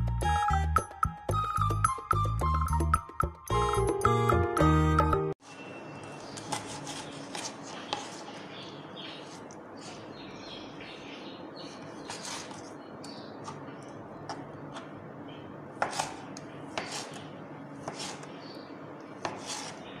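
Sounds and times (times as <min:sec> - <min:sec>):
knife slicing on cutting board: 0:15.8 - 0:17.2, 0:17.8 - 0:18.3, 0:19.2 - 0:19.9.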